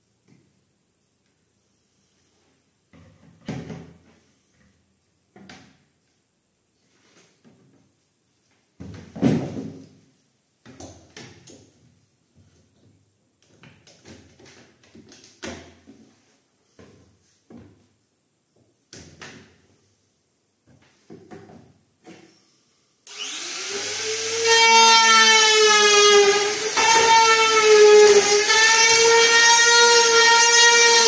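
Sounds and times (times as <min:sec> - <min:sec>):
trim router whining: 0:23.1 - 0:31.0.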